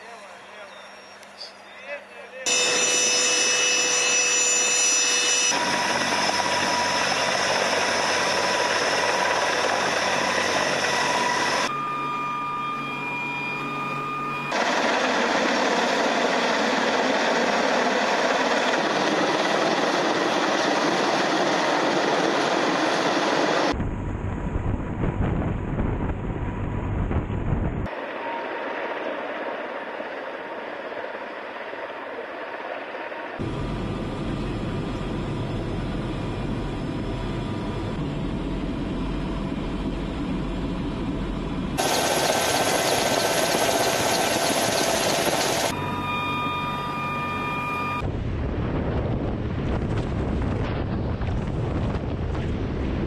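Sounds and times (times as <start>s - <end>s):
helicopter rotor and turbine: 2.5s - 53.0s
deep rumble: 23.7s - 27.9s, 48.0s - 53.0s.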